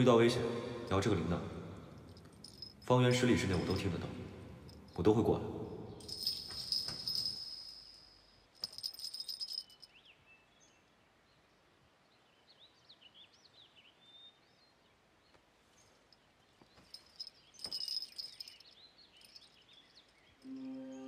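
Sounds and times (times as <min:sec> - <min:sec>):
bracelet bells jingling: 0:01.9 - 0:05.2, 0:05.9 - 0:10.0, 0:16.1 - 0:20.6
faint bird chirps: 0:06.0 - 0:21.0.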